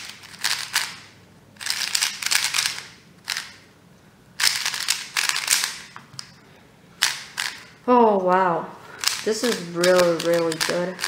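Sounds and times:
plastic puzzle cube clicking: 0.0s - 3.6s, 4.4s - 5.9s, 7.0s - 7.6s, 9.0s - 11.0s.

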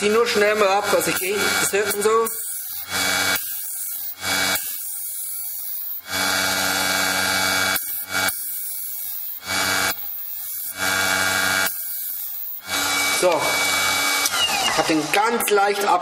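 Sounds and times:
electric motor running: 0.0s - 15.4s.

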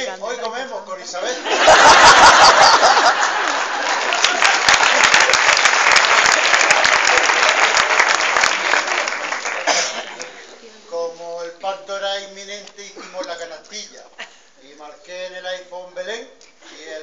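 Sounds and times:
audience applauding: 1.7s - 10.4s.

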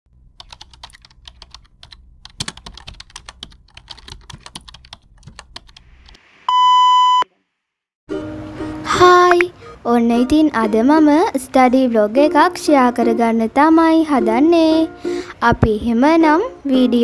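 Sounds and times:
keyboard typing clicks: 0.4s - 5.8s
high test tone beep: 6.5s - 7.3s.

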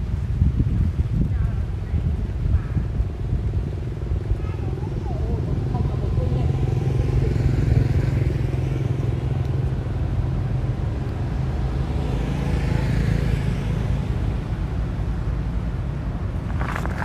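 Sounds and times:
traffic engine rumble: 0.0s - 17.0s
vehicle passing by: 3.6s - 15.1s.

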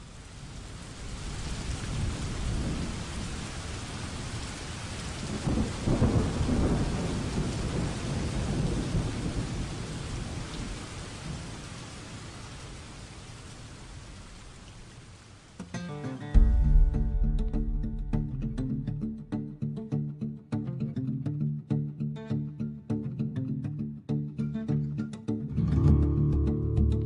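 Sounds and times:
rain falling: 0.0s - 19.6s
rolling thunder: 5.2s - 10.8s, 16.4s - 19.6s.

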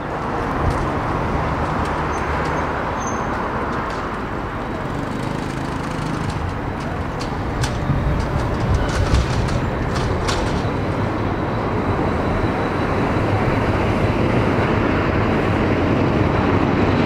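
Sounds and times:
diesel engine throbbing: 0.0s - 16.8s
rail noise: 0.0s - 17.0s
wheels clicking over rail joints: 0.4s - 11.4s.

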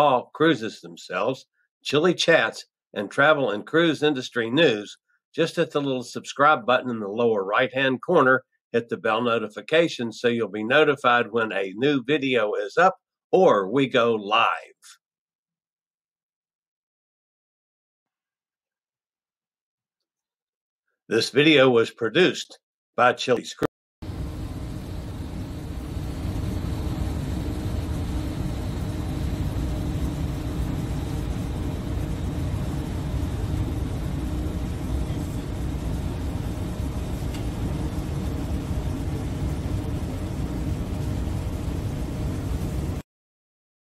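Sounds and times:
faint steady hum: 24.0s - 43.0s
rushing wind: 24.0s - 43.0s.

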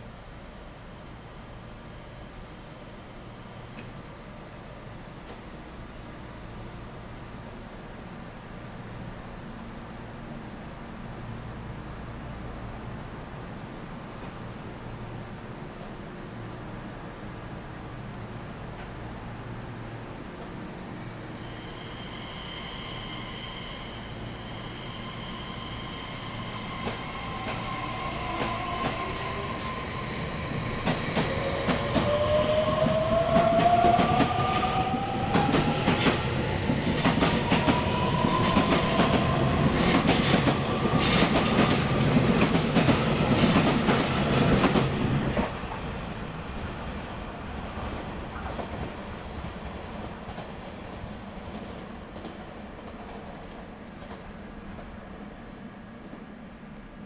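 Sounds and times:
train rumble: 0.0s - 57.0s.

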